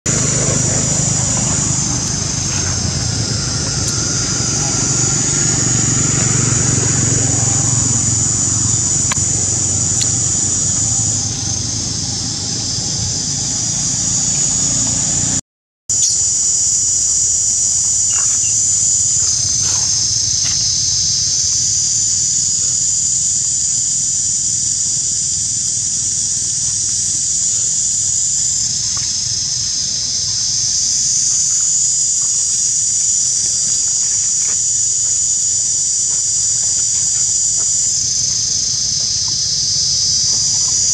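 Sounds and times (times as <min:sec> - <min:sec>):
high-pitched insect chorus buzzing: 0:00.0 - 0:40.9
low rumble: 0:00.1 - 0:15.4.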